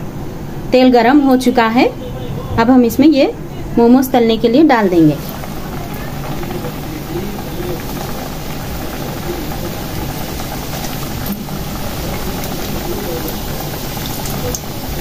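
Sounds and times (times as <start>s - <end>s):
dumplings sizzling in hot oil: 4.1s - 15.0s.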